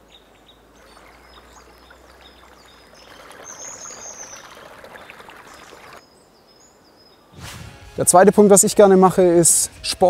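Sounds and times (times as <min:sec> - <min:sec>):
small birds chirping: 0:00.0 - 0:07.4
stream running over rocks: 0:00.6 - 0:06.1.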